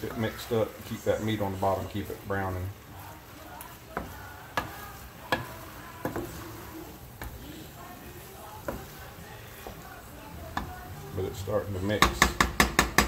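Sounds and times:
meat sizzling: 0:00.0 - 0:13.0
wooden spoon knocking on pot: 0:03.9 - 0:06.5, 0:08.6 - 0:09.0, 0:09.6 - 0:10.9, 0:11.9 - 0:13.0.

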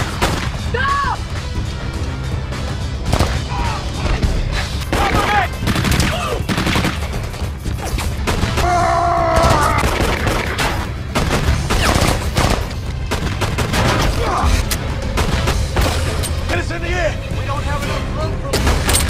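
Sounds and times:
film music: 0:00.0 - 0:19.0
automatic weapon gunfire: 0:04.9 - 0:07.2
pistol shots: 0:09.4 - 0:14.2.

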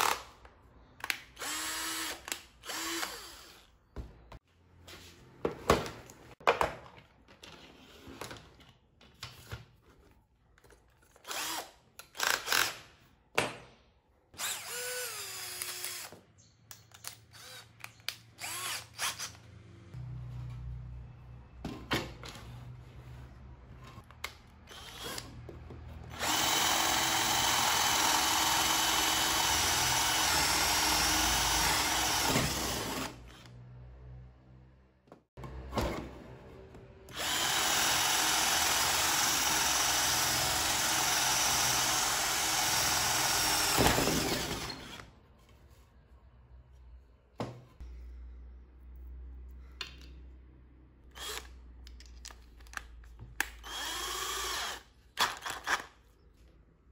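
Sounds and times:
drill drilling through wood: 0:01.4 - 0:03.7, 0:11.2 - 0:12.8, 0:14.4 - 0:16.1, 0:17.3 - 0:17.6, 0:18.4 - 0:19.4, 0:24.7 - 0:25.3, 0:26.1 - 0:33.6, 0:37.1 - 0:45.1, 0:51.2 - 0:51.5, 0:53.6 - 0:55.9.

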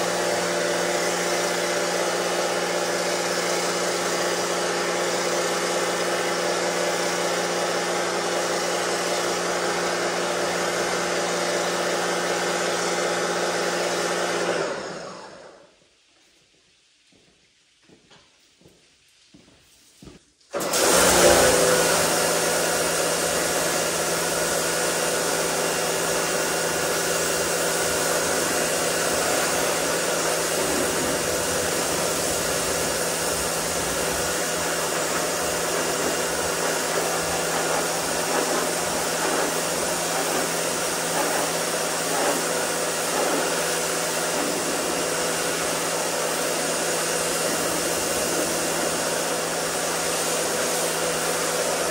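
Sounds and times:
pressure washer motor hum: 0:00.0 - 0:15.6, 0:20.5 - 0:51.9
water spray hissing: 0:26.8 - 0:51.9.

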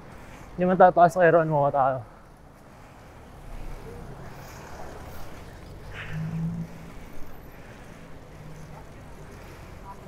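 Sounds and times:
city traffic rumble: 0:00.0 - 0:10.0.

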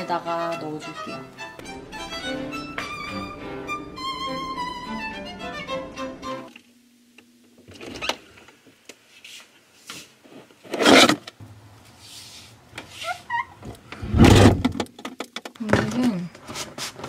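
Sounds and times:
short squeaks: 0:12.9 - 0:13.6
plastic containers clicking and knocking: 0:14.6 - 0:16.1.

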